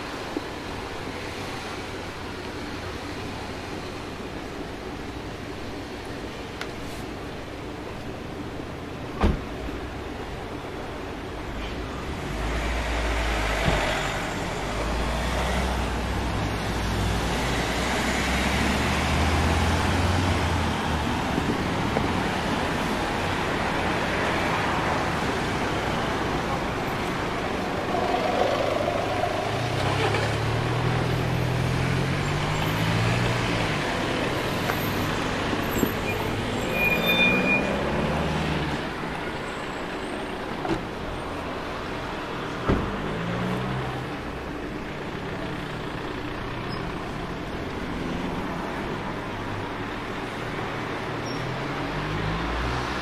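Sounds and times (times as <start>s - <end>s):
road traffic noise: 0.0s - 53.0s
vehicles pulling away: 11.4s - 53.0s.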